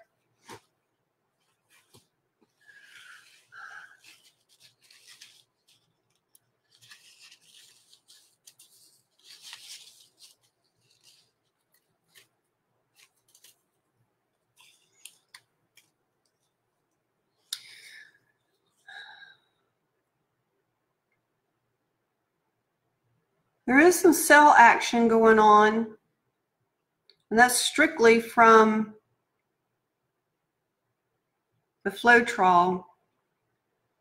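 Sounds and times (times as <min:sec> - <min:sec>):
rubbing and rustling handling noise: 0:00.0 - 0:17.5.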